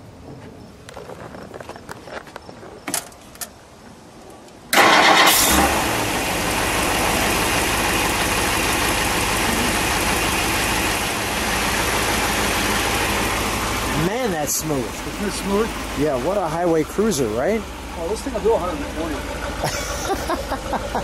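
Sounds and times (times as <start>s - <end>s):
car engine starting and idling: 4.7s - 21.0s.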